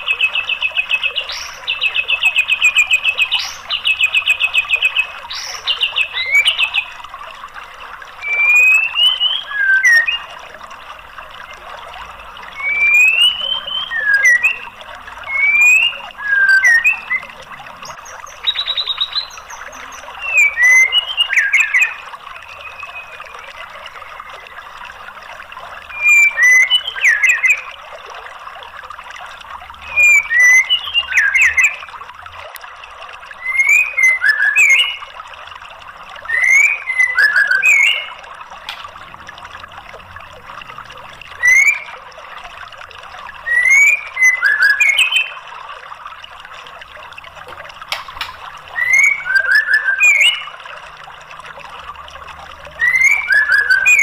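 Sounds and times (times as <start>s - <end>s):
trickling water: 0.0s - 54.0s
bird whistling calls: 8.2s - 10.4s, 12.5s - 24.4s, 25.9s - 27.6s, 29.8s - 31.8s, 33.4s - 35.1s, 36.3s - 38.2s, 41.4s - 42.0s, 43.4s - 45.4s, 48.7s - 50.6s, 52.7s - 54.0s.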